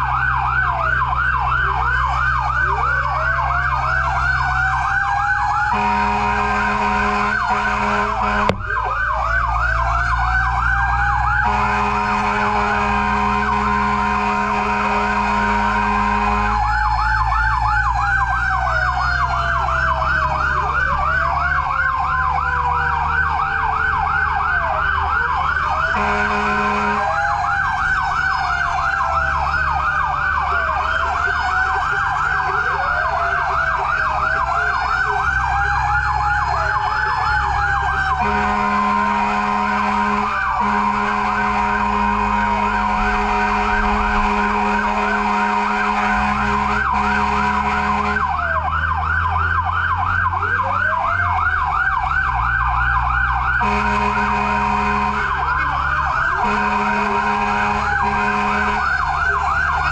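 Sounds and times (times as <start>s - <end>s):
engine rumble: 0.0s - 59.9s
fire truck siren: 0.0s - 59.9s
horn blasts: 5.6s - 8.8s, 11.3s - 16.9s, 25.8s - 29.6s, 38.0s - 48.4s, 53.6s - 59.9s.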